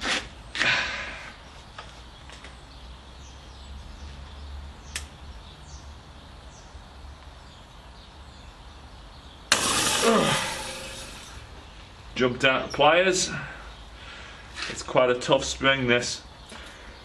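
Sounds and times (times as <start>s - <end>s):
sharp click: 4.9s - 5.1s
ringing twang falling in pitch: 9.5s - 11.4s
spring snapping with loud bang: 9.5s - 11.4s.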